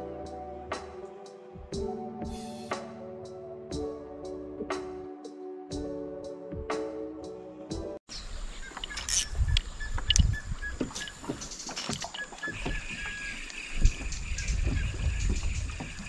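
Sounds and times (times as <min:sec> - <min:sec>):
background music: 0:00.0 - 0:08.0
wind rumble on microphone: 0:08.3 - 0:11.6, 0:12.5 - 0:16.0
moving water: 0:10.0 - 0:16.0.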